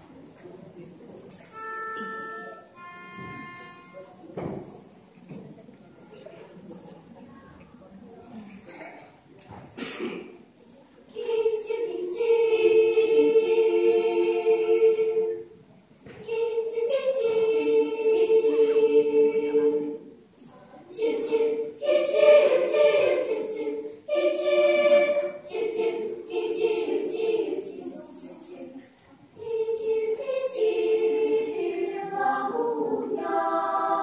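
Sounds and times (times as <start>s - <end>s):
children's choir singing: 1.5s - 4.9s, 11.0s - 34.0s.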